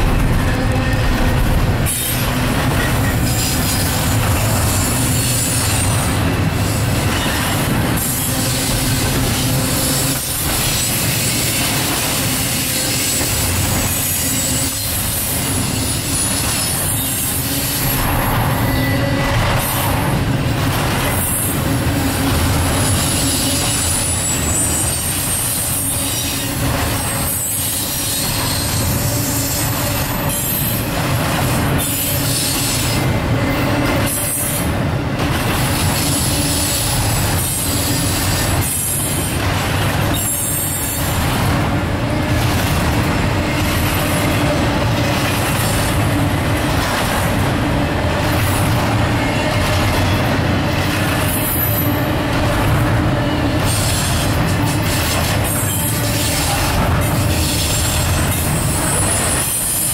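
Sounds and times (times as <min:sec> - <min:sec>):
freight train rumbling past: 0:00.0 - 0:59.9
high wheel squeal: 0:12.5 - 0:19.7, 0:22.8 - 0:30.9.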